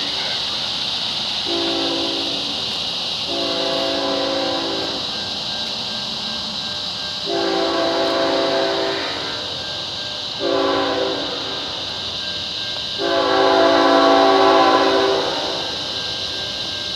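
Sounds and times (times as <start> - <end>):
distant locomotive air horn: 1.4 - 2.6, 3.3 - 5.0, 7.2 - 9.5, 10.4 - 11.7, 13.0 - 15.8.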